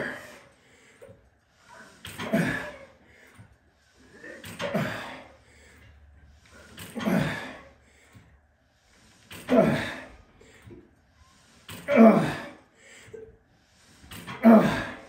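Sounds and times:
man breathing heavily: 0:00.0 - 0:15.0.

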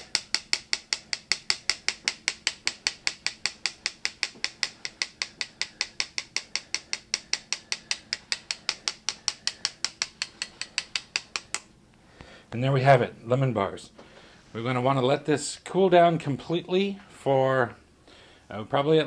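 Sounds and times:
metal spoon tapping a sieve: 0:00.0 - 0:11.6.

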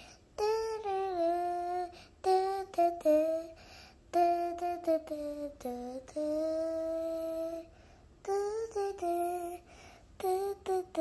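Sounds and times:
person humming a tune: 0:08.3 - 0:09.6.

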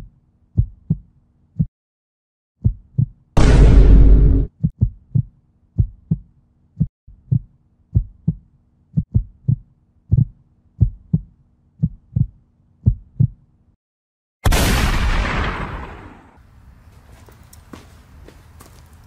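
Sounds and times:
heartbeat thumps: 0:00.6 - 0:01.7, 0:02.6 - 0:13.4.

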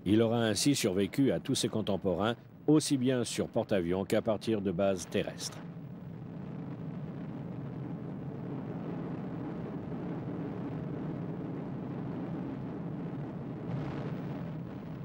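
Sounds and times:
propeller aircraft engine drone: 0:03.8 - 0:15.0.

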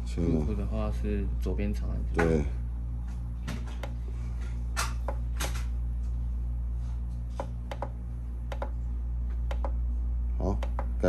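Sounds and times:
steady low hum: 0:00.0 - 0:11.0
buttons clicking: 0:10.6 - 0:10.9.

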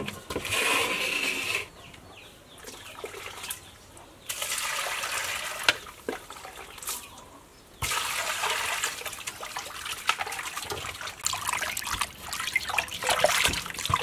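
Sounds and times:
water splashing and sloshing: 0:02.6 - 0:07.2, 0:07.8 - 0:14.0.

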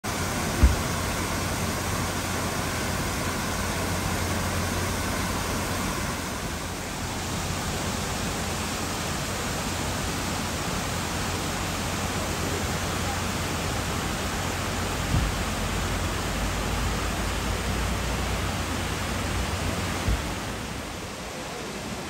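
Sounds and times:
water pouring down a weir: 0:00.0 - 0:22.0
short low thump: 0:00.6 - 0:01.0, 0:15.1 - 0:15.4, 0:20.0 - 0:20.4.

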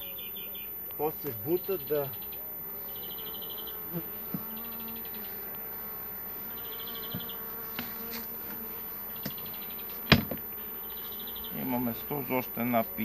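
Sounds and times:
bees buzzing: 0:00.0 - 0:13.0
sharp knock on hive box: 0:04.2 - 0:04.6, 0:07.0 - 0:10.5.

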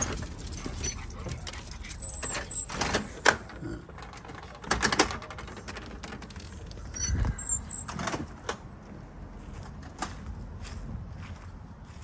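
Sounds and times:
storm door latch clicks and rattles: 0:02.7 - 0:08.6.

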